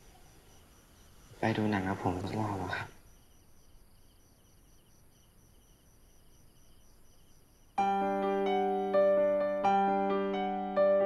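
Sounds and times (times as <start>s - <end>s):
insects chirping: 0.0s - 11.0s
piano chords: 7.8s - 11.0s.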